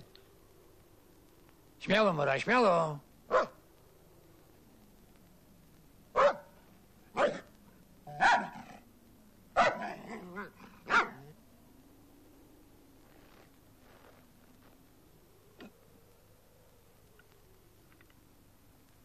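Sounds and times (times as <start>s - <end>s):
dog barking loudly: 3.3s - 3.6s, 6.2s - 6.5s, 7.1s - 7.5s, 8.1s - 8.8s, 9.6s - 11.3s.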